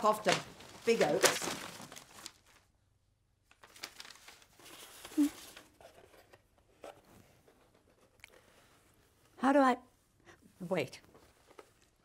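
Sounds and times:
paper rustling and crinkling: 0.0s - 2.7s, 3.4s - 8.5s, 11.1s - 12.0s.

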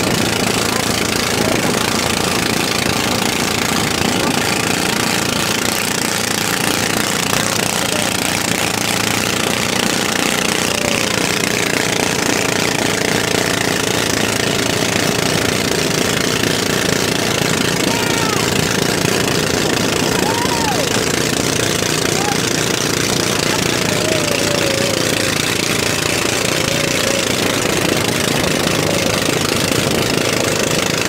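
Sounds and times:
boat engine hammering: 0.0s - 31.0s
water and wind rushing: 0.0s - 31.0s.

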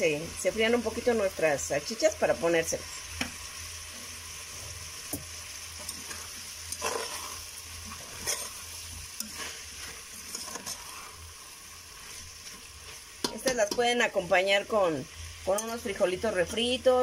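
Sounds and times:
sausages and onion sizzling: 0.0s - 17.0s
metal spoon scraping a pot: 5.9s - 8.6s, 9.2s - 11.2s.

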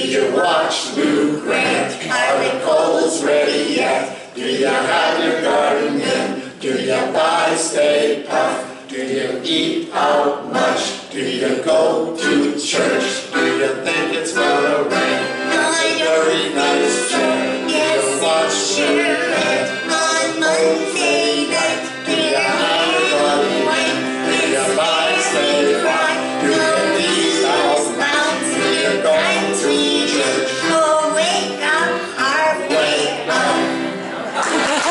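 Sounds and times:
accordion: 0.0s - 34.9s
man singing: 11.5s - 30.8s
acoustic guitar: 12.2s - 34.9s
woman singing: 15.5s - 18.1s, 18.7s - 33.7s.

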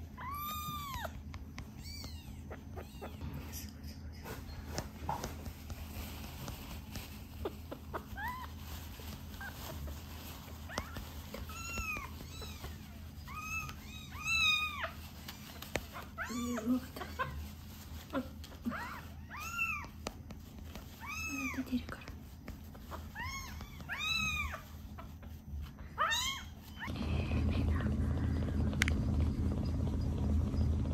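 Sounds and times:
kitten mewing: 0.0s - 4.1s.

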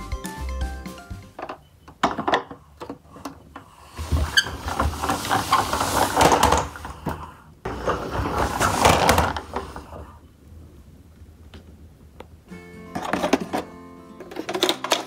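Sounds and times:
toy car wheels rumbling on floor: 3.0s - 10.1s.

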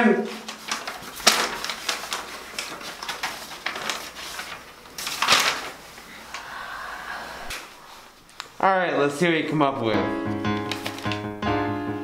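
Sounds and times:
paper swish: 0.3s - 6.0s, 10.6s - 11.2s
paper rustling and crinkling: 0.3s - 6.4s, 10.3s - 11.4s.

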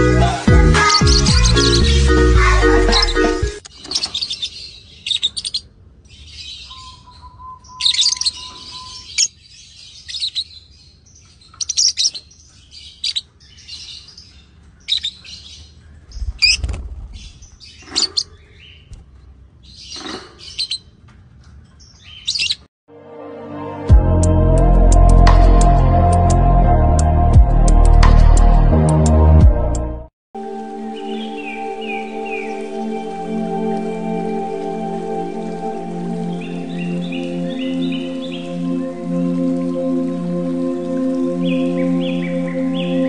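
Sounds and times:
lovebirds chirping: 0.0s - 21.0s, 21.7s - 22.7s, 30.8s - 43.0s.

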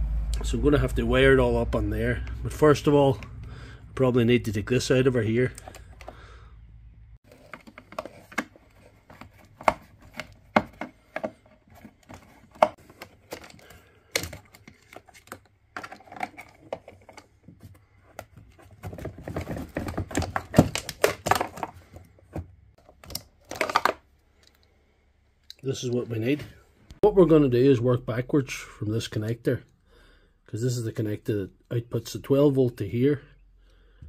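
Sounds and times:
hard plastic clicking and rattling: 5.5s - 6.2s, 7.3s - 24.7s.

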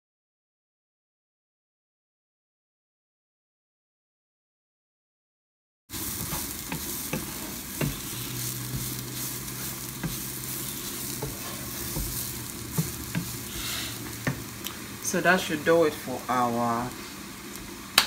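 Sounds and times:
cabbage sizzling in oil: 5.9s - 18.0s
spatula knocking against pan: 6.3s - 8.1s, 10.0s - 10.4s, 11.1s - 14.5s.

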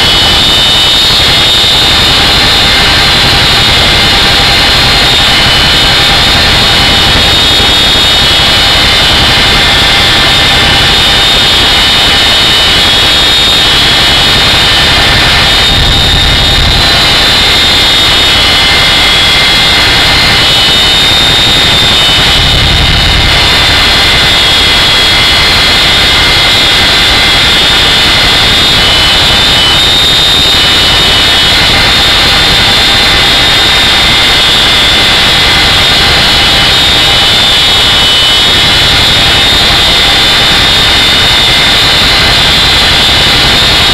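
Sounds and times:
helicopter rotor rushing din: 0.0s - 43.9s
high turbine whine: 0.0s - 43.9s
deep rumble: 14.4s - 24.8s.

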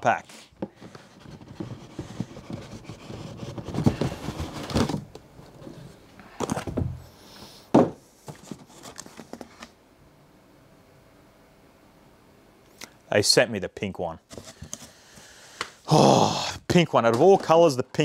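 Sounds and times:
cardboard lid scraping and rustling: 0.6s - 6.8s
knocks on cardboard box: 7.7s - 8.0s.

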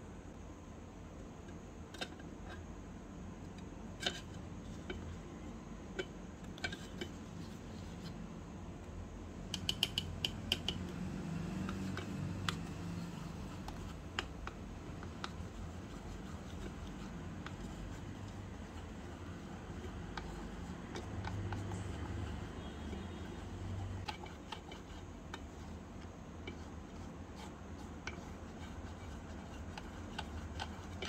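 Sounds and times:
low steady hum: 0.0s - 31.0s
utensil tapping cookware: 9.4s - 11.0s, 11.6s - 26.8s.

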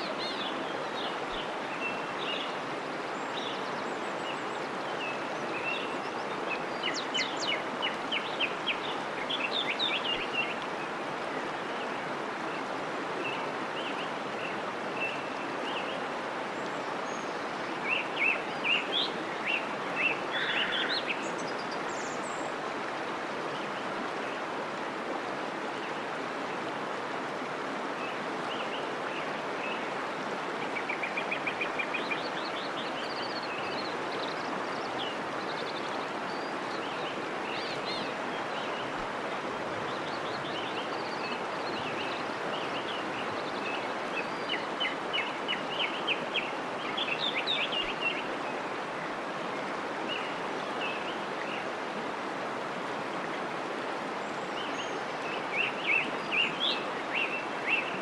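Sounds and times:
songbirds chirping and trilling: 0.0s - 24.8s
stream running: 0.0s - 58.0s.

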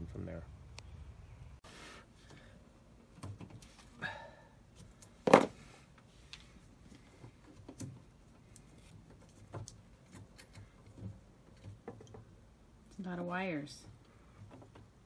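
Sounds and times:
hands tapping electrical wires: 3.0s - 3.9s, 4.8s - 12.5s.

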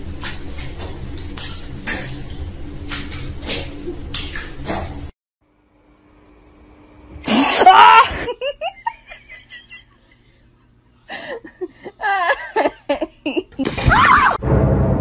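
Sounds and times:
person laughing: 7.3s - 10.4s, 11.1s - 13.8s.

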